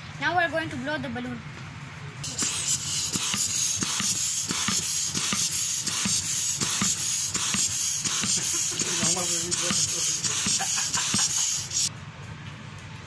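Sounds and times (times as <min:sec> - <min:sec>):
air hissing into balloon: 0:02.2 - 0:11.9.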